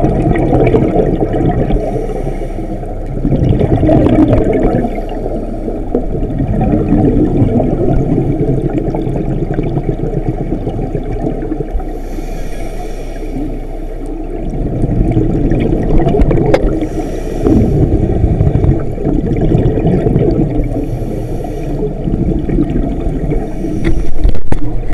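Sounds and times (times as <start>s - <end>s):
scuba regulator bubble bursts: 0.0s - 1.8s, 3.1s - 5.0s, 6.0s - 11.8s, 14.4s - 20.8s
muffled underwater water rush: 0.0s - 24.9s.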